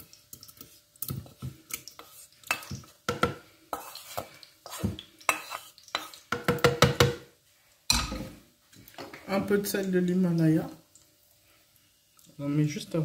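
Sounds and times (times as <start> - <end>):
wooden spatula scraping a pan: 0.5 - 7.0.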